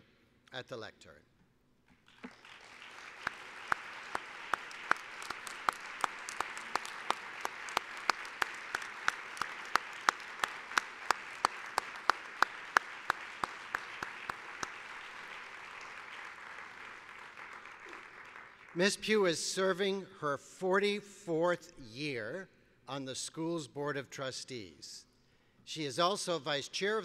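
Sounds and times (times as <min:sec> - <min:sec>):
audience applause: 0:02.1 - 0:18.9.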